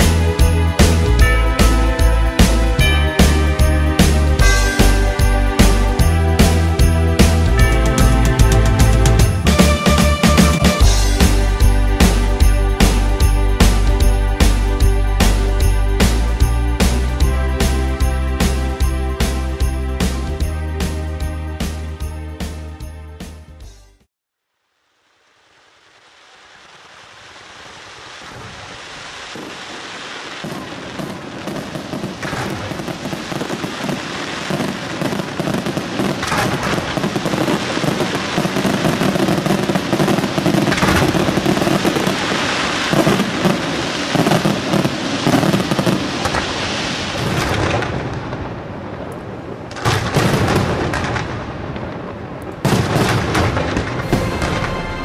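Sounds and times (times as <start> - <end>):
fireworks bangs and crackling: 0.0 - 22.7, 25.5 - 55.0
sharp firework cracks: 26.1 - 55.0.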